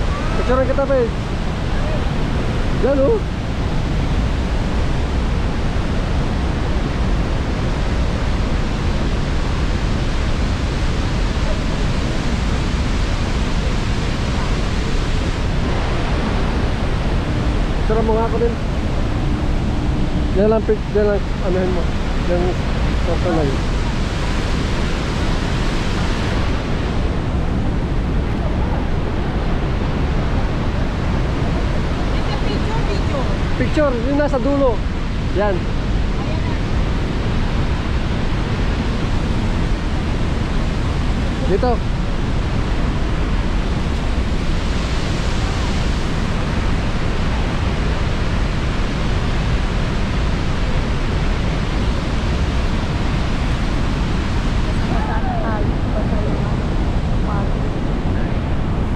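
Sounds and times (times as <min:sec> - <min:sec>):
waterfall roaring: 0:00.0 - 0:58.9
wind buffeting microphone: 0:00.0 - 0:58.9.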